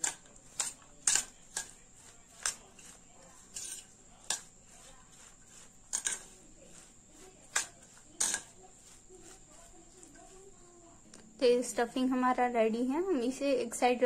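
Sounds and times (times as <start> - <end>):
metal spoon clinking on steel bowl: 0.0 - 1.8, 2.4 - 4.8, 5.8 - 6.8, 7.5 - 8.6
soft stirring of thick mix: 0.0 - 14.0.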